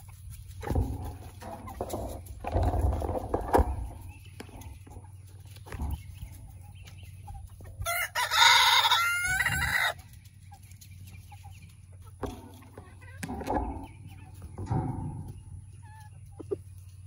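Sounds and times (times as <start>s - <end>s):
hens clucking: 0.0s - 17.0s
rooster crowing: 7.8s - 10.0s.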